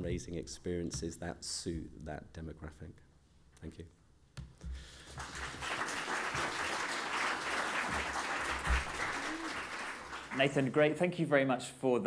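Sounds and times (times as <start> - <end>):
audience applause: 5.1 - 10.8.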